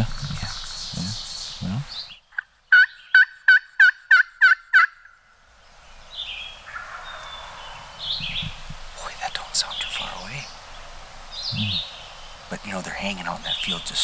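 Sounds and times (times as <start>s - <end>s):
turkey call yelps: 2.7s - 5.2s, 6.7s - 7.9s.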